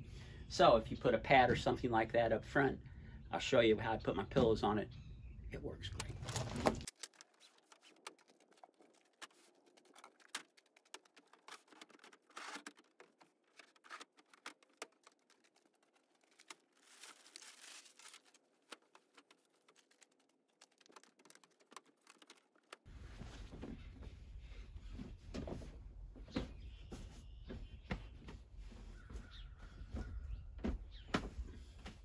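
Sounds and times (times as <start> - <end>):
rustling: 6.0 - 25.9
gear clicking and tapping: 6.9 - 16.6, 18.6 - 22.9.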